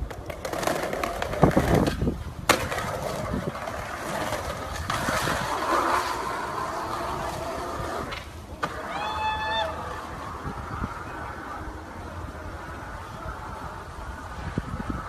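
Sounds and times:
skateboard clacking on pavement: 0.0 - 9.0
skateboard clattering: 0.0 - 15.0
skateboard wheels rolling on asphalt: 0.0 - 15.0.

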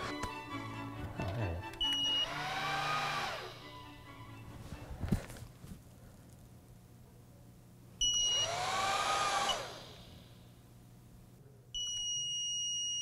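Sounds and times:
small fans spinning: 1.2 - 6.5, 8.0 - 10.3
continuous high-pitched beep: 1.8 - 2.4, 8.0 - 8.6, 11.8 - 13.0.

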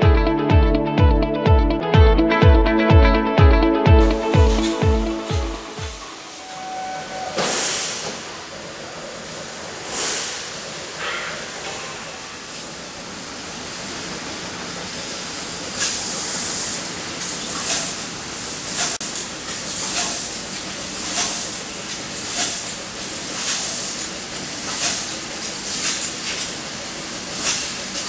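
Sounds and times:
short bursts of hiss: 4.0 - 8.3, 9.8 - 11.0, 15.7 - 19.0, 27.3 - 27.8
laser cutting machine hissing: 4.0 - 28.0.

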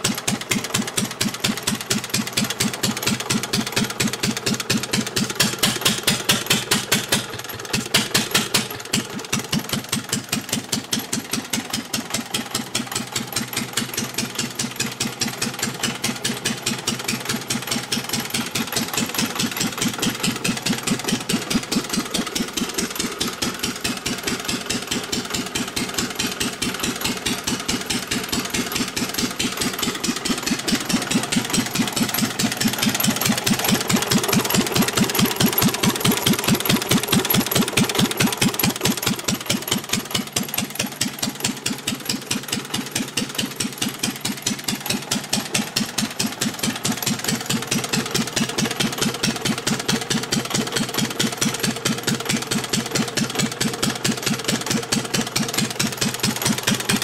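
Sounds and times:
stationary engine running: 15.9 - 57.0.

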